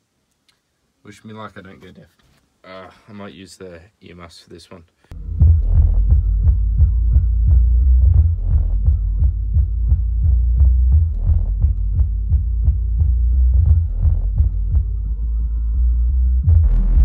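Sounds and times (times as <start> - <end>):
bass-heavy music from subwoofer: 5.1 - 17.0.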